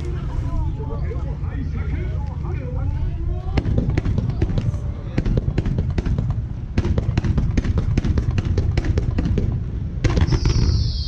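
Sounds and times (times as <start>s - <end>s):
low rumble: 0.0s - 11.0s
fireworks launch bangs: 10.0s - 11.0s.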